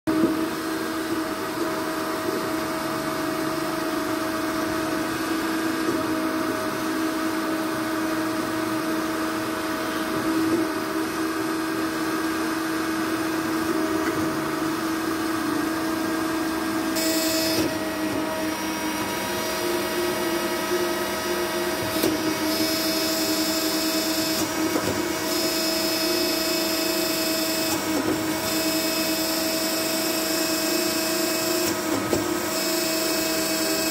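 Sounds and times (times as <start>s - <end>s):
high-pitched whine: 9.4s - 31.7s
bandsaw motor hum: 9.7s - 33.9s.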